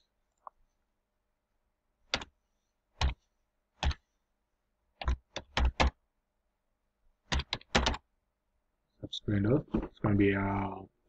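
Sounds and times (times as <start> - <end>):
computer keyboard keystrokes: 7.3 - 8.0.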